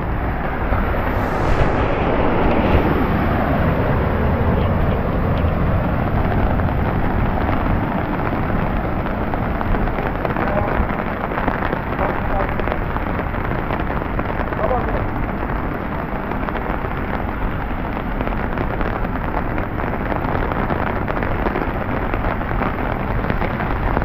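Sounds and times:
wind buffeting microphone: 0.0 - 7.4.

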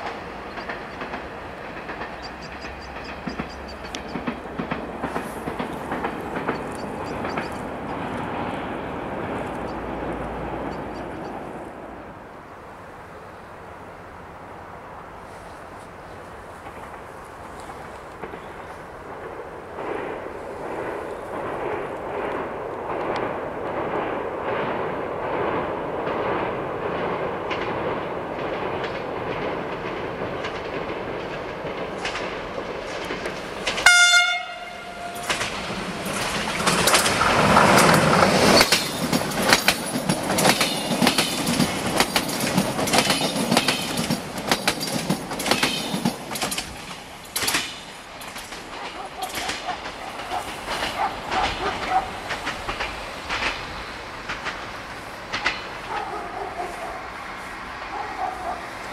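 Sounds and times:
wheels clattering over rail joints: 0.0 - 11.6, 16.5 - 58.9
diesel train engine running: 0.0 - 12.3, 27.8 - 58.9
train horn blast: 33.8 - 35.6.

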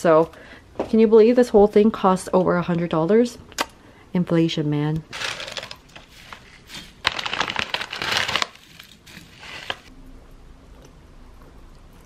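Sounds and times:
dried stems crackling: 5.1 - 9.9
plastic packet crinkling: 5.1 - 9.9.

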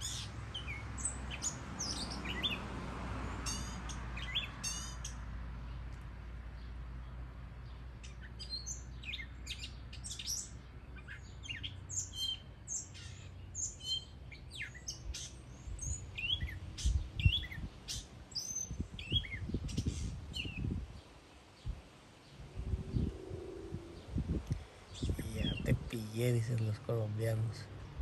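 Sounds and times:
mockingbird singing: 8.0 - 20.7, 22.3 - 27.7.

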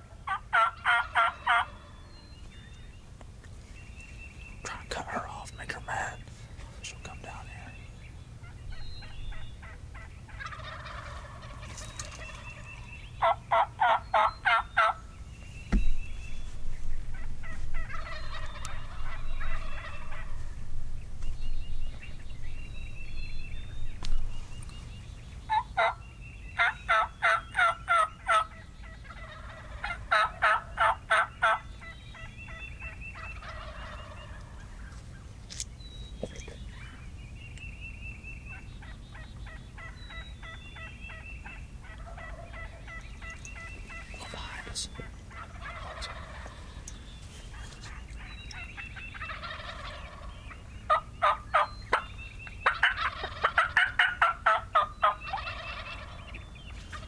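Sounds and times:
songbird chirps: 0.0 - 57.0
turkeys gobbling: 0.2 - 2.0, 8.4 - 15.0, 17.1 - 20.6, 25.5 - 26.0, 26.6 - 35.2, 38.5 - 57.0.

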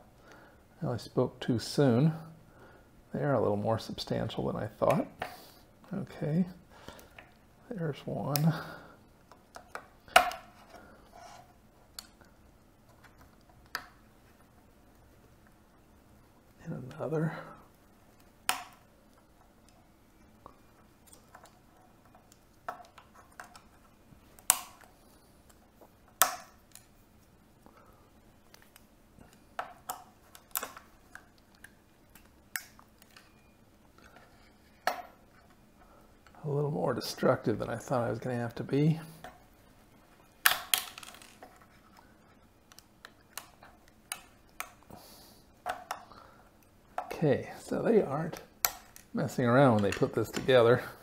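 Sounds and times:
plastic clips snapping: 18.2 - 18.8, 24.4 - 24.9, 28.5 - 33.2, 40.4 - 41.4.

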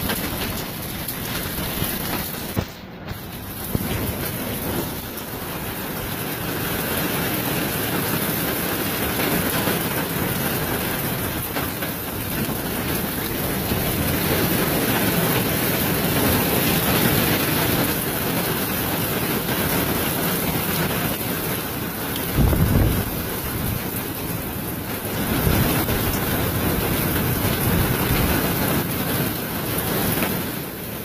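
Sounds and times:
heavy rain and hail: 0.0 - 31.0.

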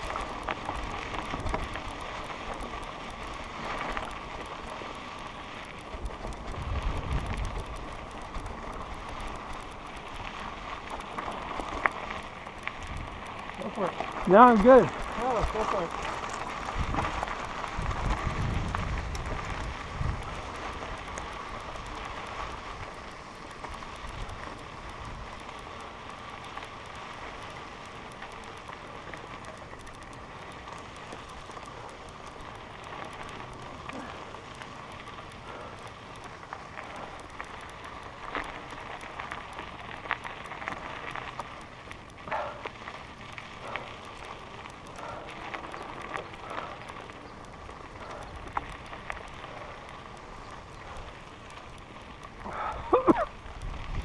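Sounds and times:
bike rattling over stones: 0.0 - 54.0
tyres crunching on gravel: 0.0 - 54.0
wind rumble on microphone: 5.8 - 9.3, 15.0 - 25.5, 47.5 - 54.0.

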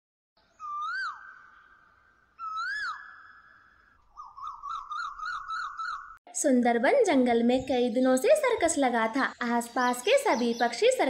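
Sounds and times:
whistled bird-like calls: 0.5 - 6.2.

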